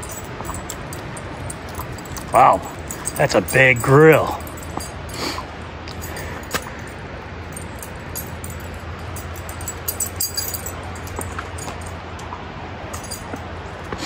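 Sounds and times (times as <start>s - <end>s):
light metallic jingling: 0.0s - 13.9s
low outdoor rumble: 0.0s - 14.0s.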